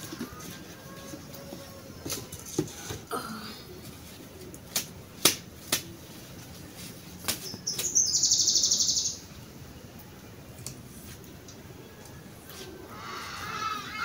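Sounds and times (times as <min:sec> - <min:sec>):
leaf stalks snapping: 0:04.4 - 0:06.0, 0:07.2 - 0:08.0.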